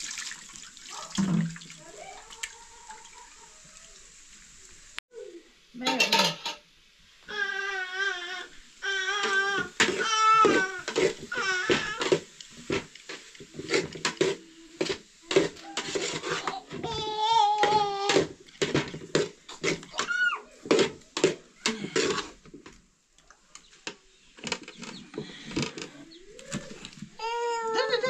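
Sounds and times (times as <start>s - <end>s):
baby crying and babbling: 7.3s - 12.3s, 16.3s - 18.3s, 19.9s - 20.6s, 26.2s - 28.0s.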